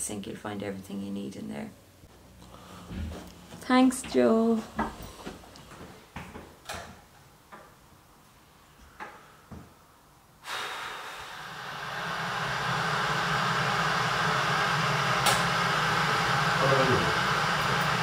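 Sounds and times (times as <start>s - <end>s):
kitchen appliance running: 11.0s - 18.0s.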